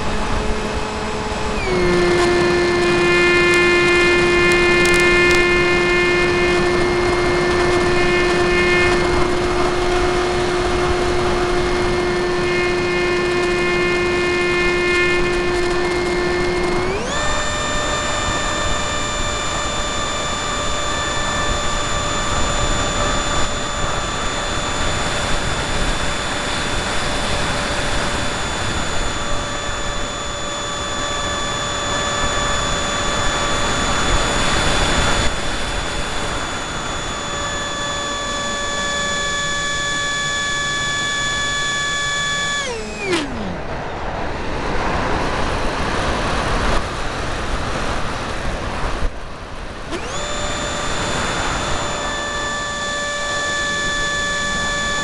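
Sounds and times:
model plane motor whining: 0:00.0 - 0:55.0.

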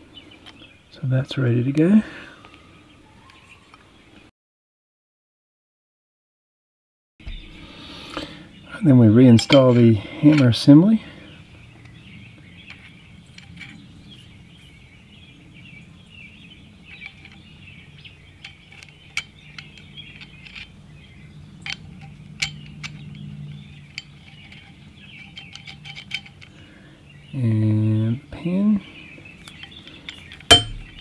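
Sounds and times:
small metallic clicks and taps: 0:18.4 - 0:20.7.

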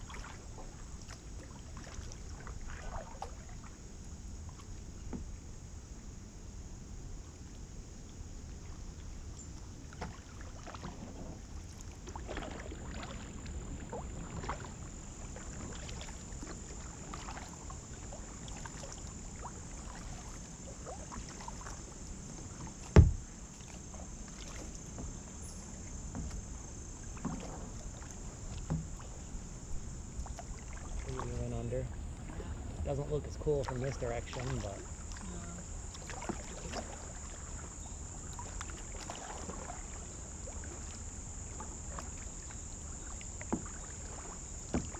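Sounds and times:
paddle strokes in water: 0:00.0 - 0:05.6, 0:07.1 - 0:44.9
sharp loud knock: 0:23.0 - 0:23.2.

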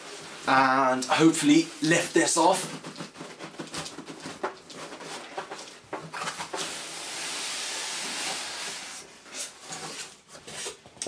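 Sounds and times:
cardboard box sliding hiss: 0:06.6 - 0:09.1.

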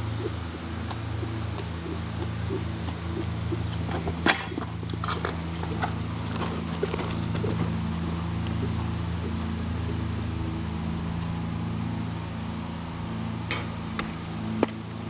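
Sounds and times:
horse hoofbeats on dirt: 0:00.0 - 0:11.8
steady low hum: 0:00.0 - 0:15.0.

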